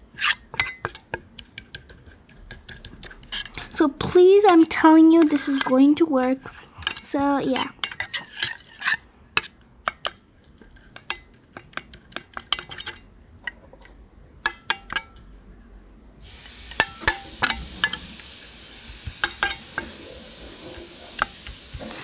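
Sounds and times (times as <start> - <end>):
spatula scraping metal bowl: 1.6 - 9.6, 16.7 - 22.0
steady hiss: 16.2 - 22.0.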